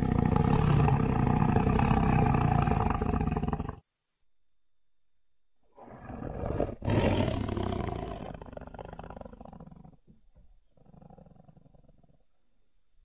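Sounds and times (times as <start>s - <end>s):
big cat roar: 0.0s - 3.8s, 5.8s - 10.0s.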